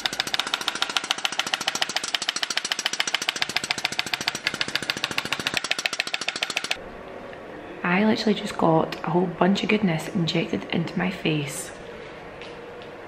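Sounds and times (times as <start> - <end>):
injector gun clicking rapidly: 0.0 - 6.8.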